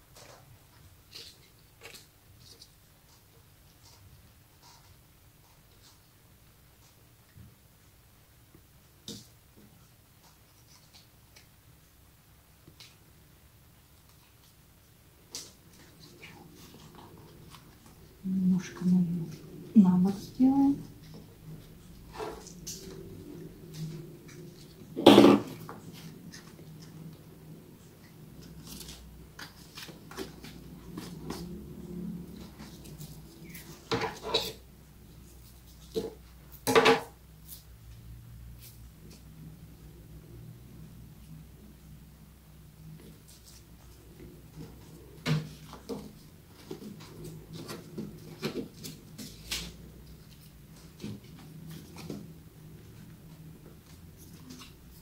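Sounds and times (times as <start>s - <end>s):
low steady hum: 0.0s - 55.0s
paper rustling and creasing: 20.9s - 34.6s.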